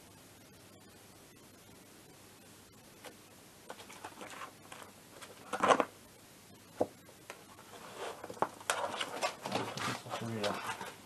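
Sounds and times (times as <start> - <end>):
paper rustling: 3.7 - 5.9, 7.6 - 11.0.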